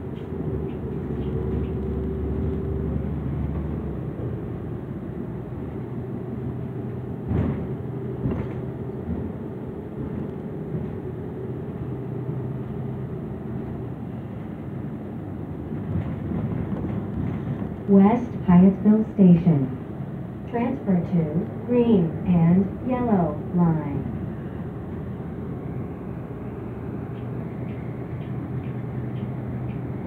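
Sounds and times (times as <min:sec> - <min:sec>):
bus drivetrain drone: 0:00.0 - 0:30.0
road noise: 0:00.0 - 0:30.0
short clunks: 0:07.3 - 0:09.3.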